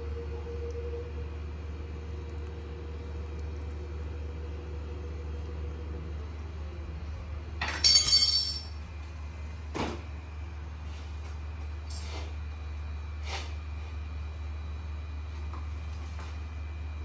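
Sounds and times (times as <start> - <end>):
metal spoon clinking down: 7.7 - 8.8.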